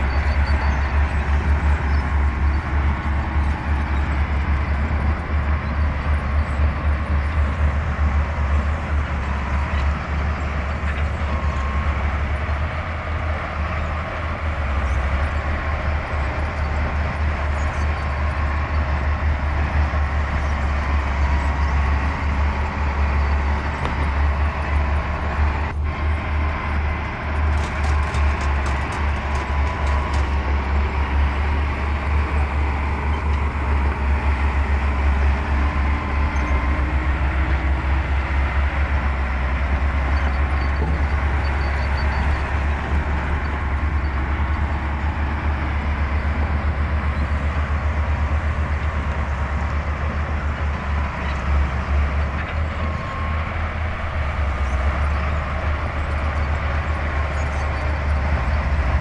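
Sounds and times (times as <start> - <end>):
bulldozer diesel engine rumbling: 0.0 - 59.0.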